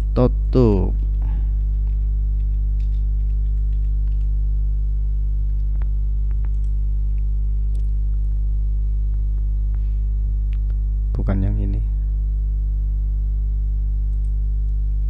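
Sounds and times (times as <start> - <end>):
electrical hum with low buzz: 0.0 - 15.0
keyboard and mouse clicks: 1.8 - 4.3, 5.8 - 6.8.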